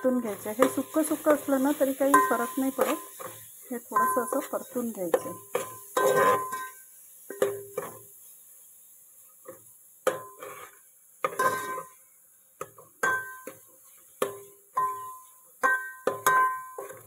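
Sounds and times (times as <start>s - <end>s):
pot ringing: 2.0s - 3.1s, 3.9s - 4.5s, 5.1s - 7.8s, 13.0s - 13.6s, 14.8s - 17.0s
metal spoon scraping a steel pot: 2.1s - 4.5s, 5.1s - 6.8s, 10.3s - 12.0s, 14.8s - 17.0s.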